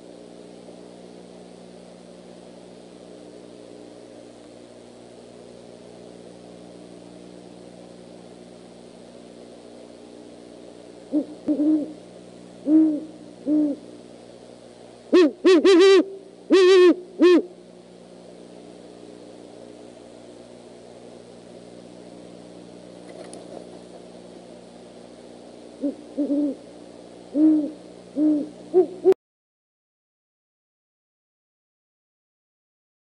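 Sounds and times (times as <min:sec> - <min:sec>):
owls hooting: 0:11.1 - 0:12.0, 0:12.6 - 0:13.8, 0:15.1 - 0:17.6, 0:25.8 - 0:26.6, 0:27.3 - 0:29.2.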